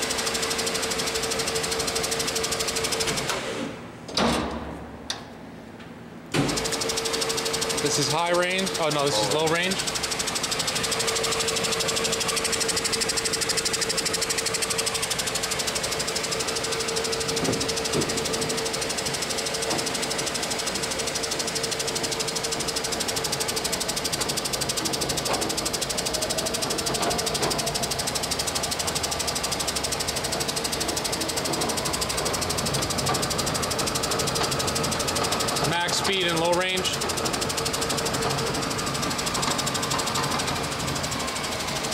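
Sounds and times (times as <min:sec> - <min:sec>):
band saw whirring and rattling: 0:06.3 - 0:41.9.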